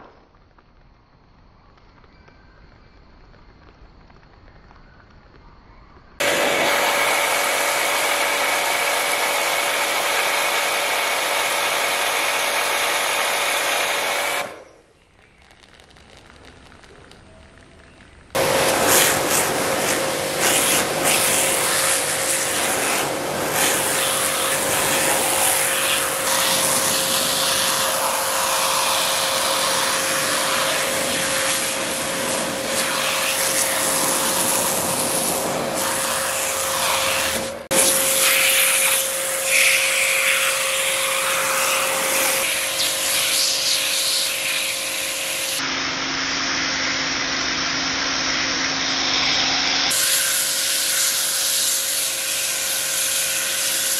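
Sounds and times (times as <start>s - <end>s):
pressure washer water hiss: 6.2s - 14.7s, 18.4s - 45.7s, 47.4s - 53.9s
washer motor humming: 6.2s - 14.7s, 18.4s - 53.9s.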